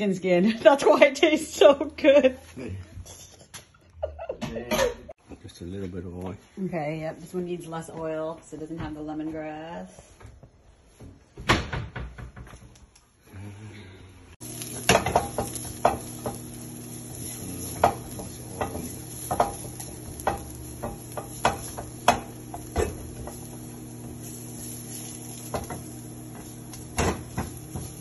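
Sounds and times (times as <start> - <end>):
food sizzling in oil: 14.4 - 28.0
utensil scraping a pan: 14.6 - 28.0.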